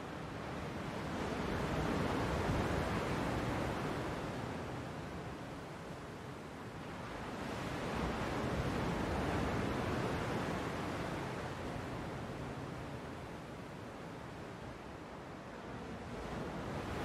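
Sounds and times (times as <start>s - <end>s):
ocean waves washing: 6.0s - 17.0s.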